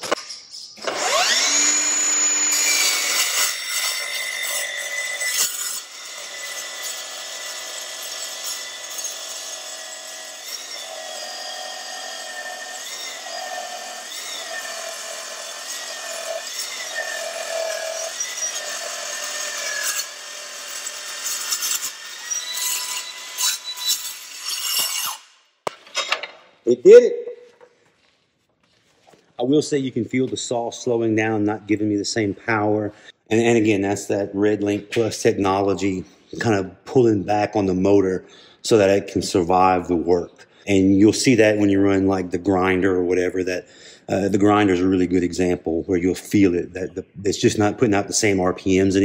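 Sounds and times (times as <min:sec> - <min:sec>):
circular saw cutting steel: 0:00.6 - 0:25.5.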